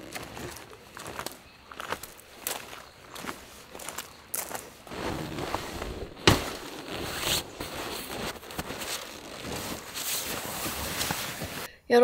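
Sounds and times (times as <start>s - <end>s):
rustling and handling noise: 1.8s - 11.7s
sharp thump: 6.2s - 6.6s.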